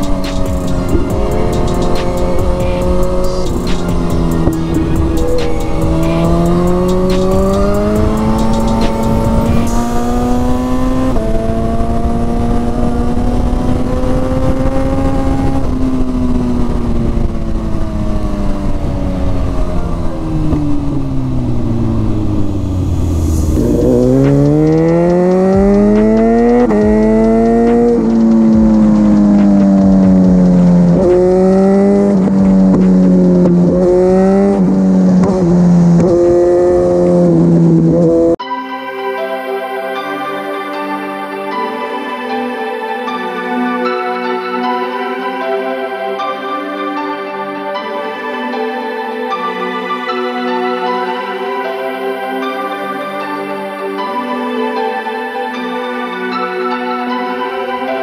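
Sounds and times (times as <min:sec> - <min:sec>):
motorcycle engine accelerating: 0:00.0 - 0:38.4.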